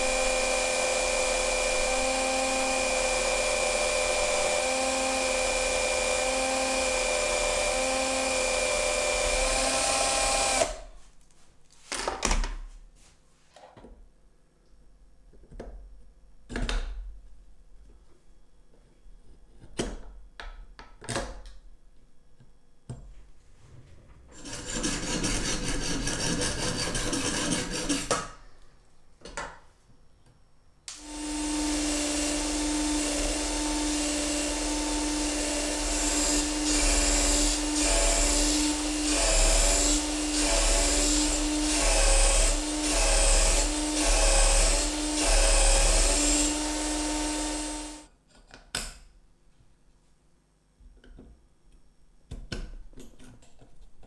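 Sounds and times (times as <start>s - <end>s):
metal grinding on sanding disc: 24.4s - 28.1s
disc sander humming: 30.9s - 48.1s.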